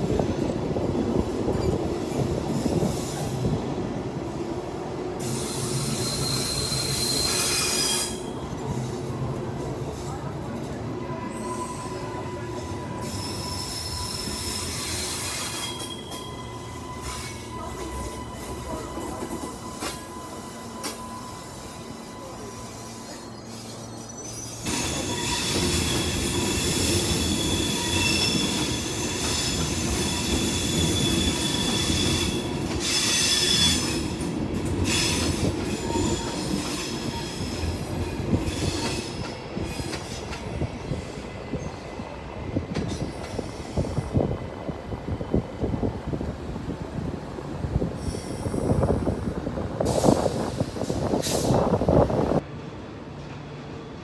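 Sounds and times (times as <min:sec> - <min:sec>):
train wheels squealing: 0:01.5 - 0:03.7, 0:05.2 - 0:45.7, 0:47.9 - 0:52.4.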